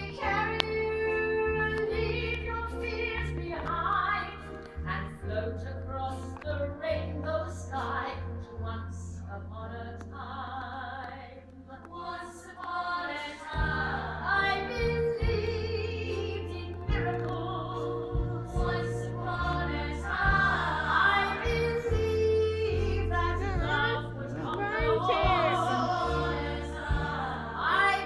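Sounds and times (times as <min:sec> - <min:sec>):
voices singing long notes: 0:11.9 - 0:28.0
music with sustained bass: 0:14.3 - 0:28.0.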